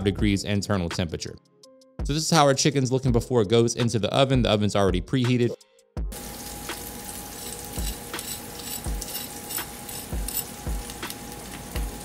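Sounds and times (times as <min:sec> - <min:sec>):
crackling sizzle: 0:06.1 - 0:12.0.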